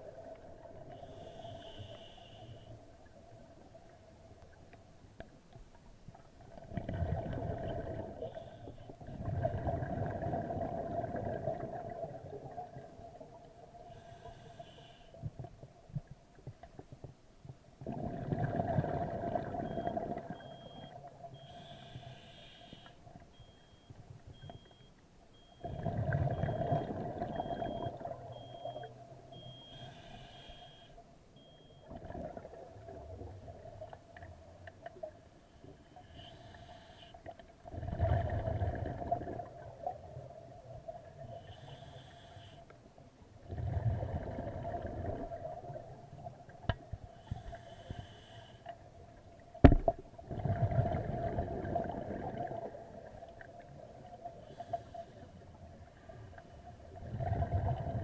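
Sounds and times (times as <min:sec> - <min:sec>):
faint steady hum: 0:00.0 - 0:58.0
exhaled bubbles underwater: 0:06.2 - 0:13.6, 0:17.8 - 0:21.3, 0:25.6 - 0:29.4, 0:31.8 - 0:34.3, 0:37.6 - 0:41.3, 0:43.4 - 0:46.6, 0:49.5 - 0:54.6, 0:56.8 - 0:58.0.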